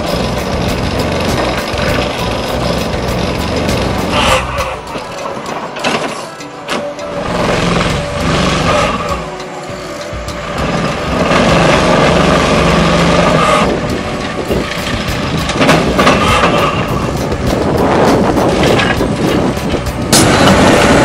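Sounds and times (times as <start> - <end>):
hydraulic ripper hammering concrete: 0.0 - 4.8, 10.4 - 21.0
diesel engine under load: 0.0 - 21.0.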